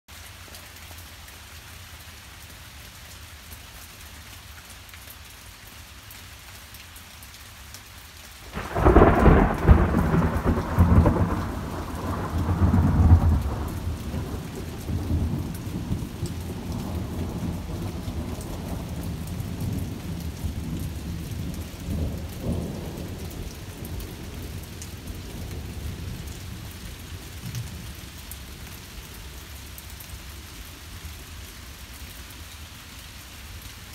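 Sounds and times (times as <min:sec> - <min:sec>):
steady rain: 0:00.1 - 0:33.9
thunderclap rumbling: 0:08.6 - 0:24.6.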